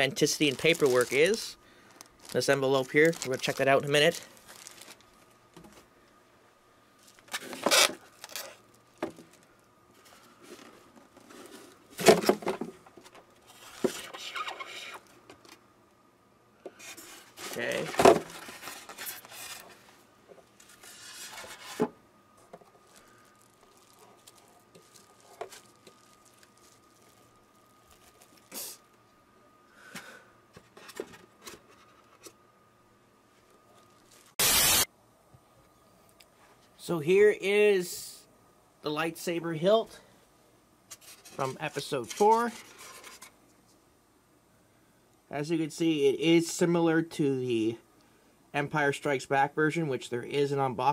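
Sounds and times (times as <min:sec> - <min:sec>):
packaging rustling: 0:00.0 - 0:05.8, 0:07.0 - 0:12.4, 0:16.8 - 0:28.7
burst of loud hiss: 0:34.4 - 0:34.9.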